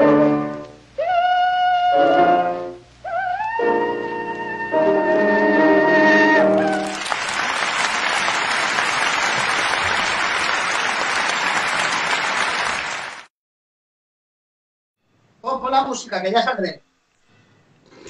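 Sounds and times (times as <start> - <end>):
audience applauding: 6.5 - 13.3.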